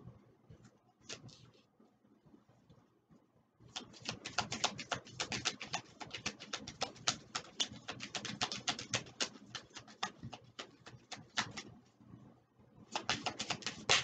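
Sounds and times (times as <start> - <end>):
cards being shuffled: 1.1 - 1.4, 3.8 - 11.7, 12.9 - 14.0.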